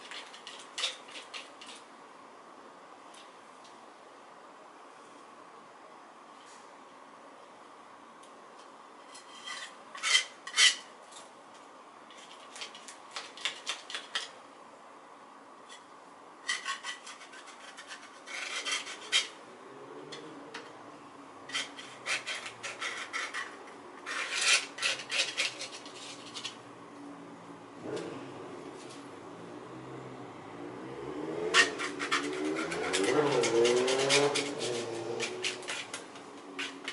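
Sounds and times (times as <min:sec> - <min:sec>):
palette knife scraping paint: 0:00.0 - 0:01.9, 0:16.5 - 0:19.4, 0:21.5 - 0:26.6, 0:31.5 - 0:36.9.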